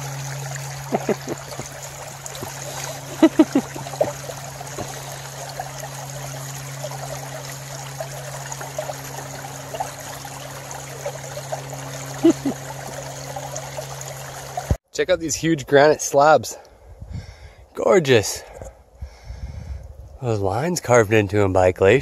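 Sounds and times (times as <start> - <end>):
creek trickling over stones: 0.0 - 14.8.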